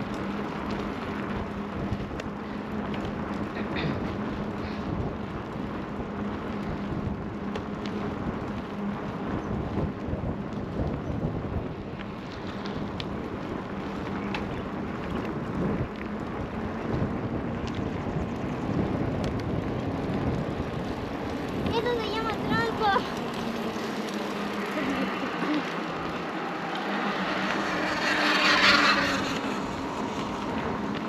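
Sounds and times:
wind buffeting microphone: 0.0 - 31.0
faint clicks: 11.9 - 13.2.

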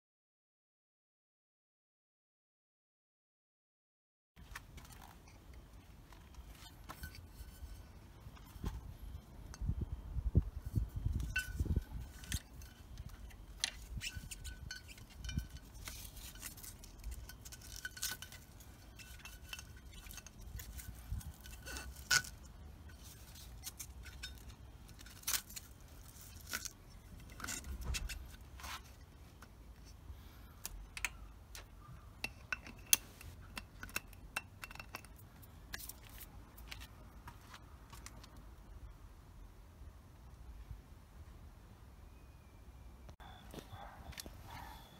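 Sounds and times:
straps scraping and clinking: 4.4 - 10.0, 10.6 - 38.4.

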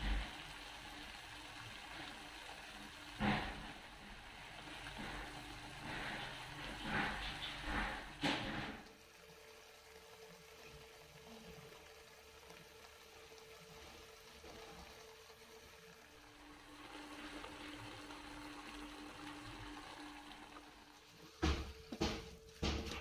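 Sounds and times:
steady hum: 0.0 - 9.3
sauce simmering in a wok: 0.0 - 23.0.

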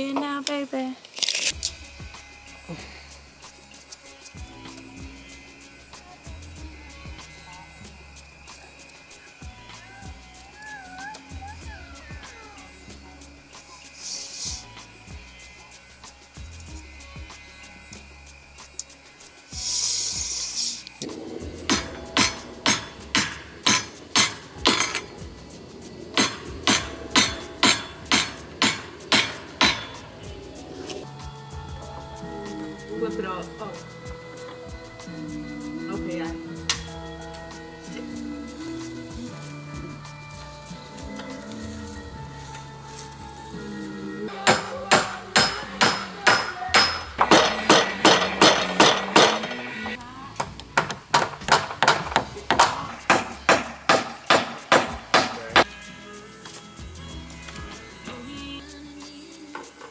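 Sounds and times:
hammer driving nails into wood: 21.7 - 25.0, 26.2 - 30.0, 44.4 - 55.6.

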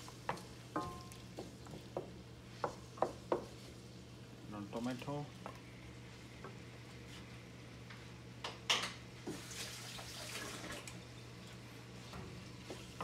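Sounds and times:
vegetables sizzling in a pan: 0.0 - 4.1.

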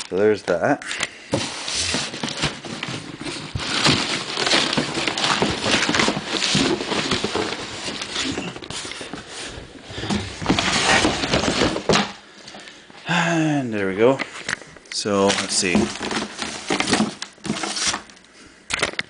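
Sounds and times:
cardboard flaps scraping: 1.3 - 12.1.

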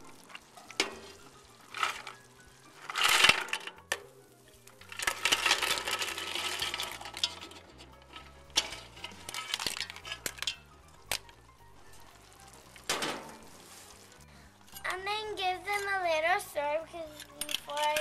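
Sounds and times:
sauce sizzling: 0.0 - 17.2
clam shells clinking on pan: 0.3 - 4.1, 4.8 - 11.4, 17.1 - 18.0.

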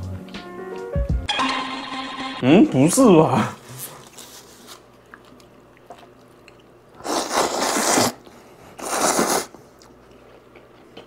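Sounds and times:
person slurping noodles: 7.0 - 9.6.

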